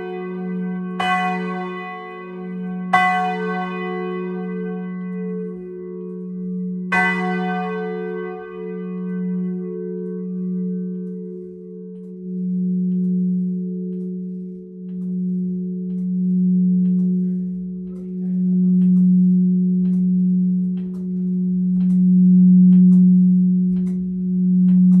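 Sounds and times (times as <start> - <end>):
church bell humming: 0.0 - 25.0.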